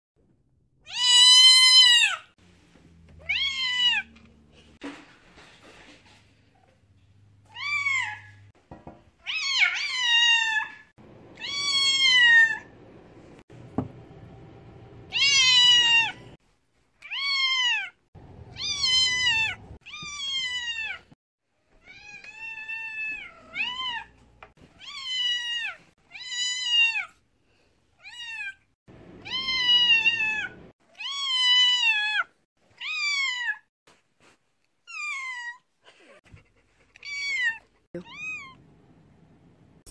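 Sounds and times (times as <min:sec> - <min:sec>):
cat meowing loudly: 0:11.4 - 0:12.7, 0:15.1 - 0:16.3, 0:17.0 - 0:21.1, 0:29.2 - 0:33.7.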